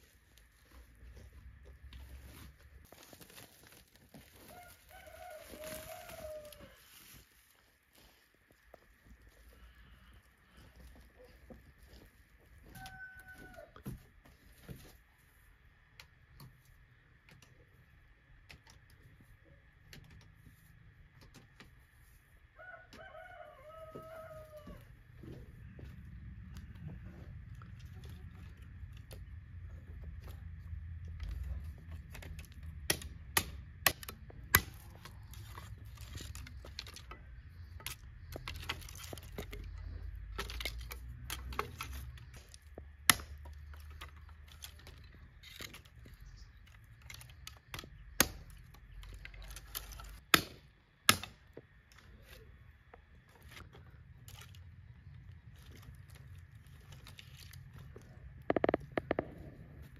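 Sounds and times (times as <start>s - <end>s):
branches cracking and snapping: 0.0s - 9.8s, 31.0s - 52.0s, 53.4s - 59.4s
twigs rustling: 0.0s - 15.0s, 26.6s - 50.3s, 53.2s - 59.9s.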